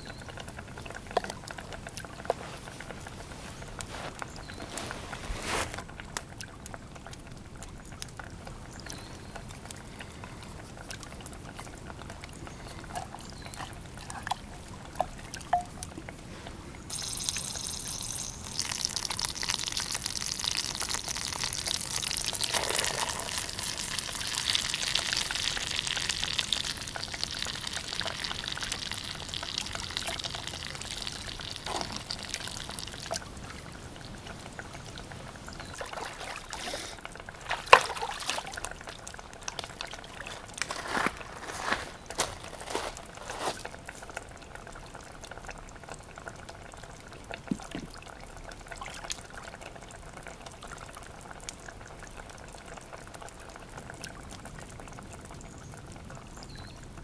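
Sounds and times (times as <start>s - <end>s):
food sizzling in a hot pan: 16.9s - 32.9s.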